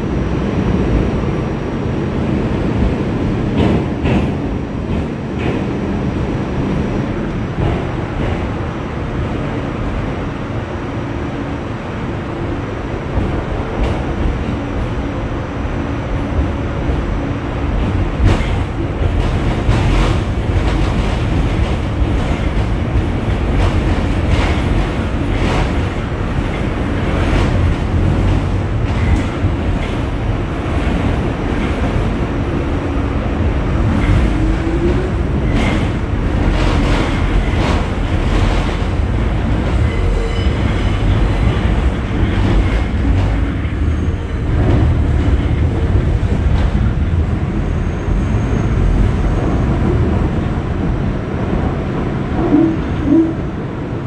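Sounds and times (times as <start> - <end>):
low rumble of wheels on rail: 0.0 - 54.0.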